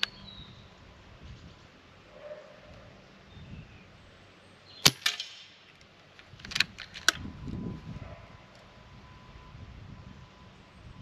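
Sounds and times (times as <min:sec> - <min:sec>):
metallic clicks of rifle action: 0:04.8 - 0:07.2.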